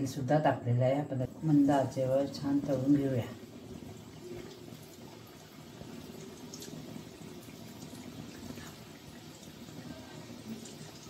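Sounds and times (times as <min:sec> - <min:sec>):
deep-frying sizzle and bubbling: 0:00.0 - 0:11.0
small crackles in oil: 0:03.7 - 0:11.0.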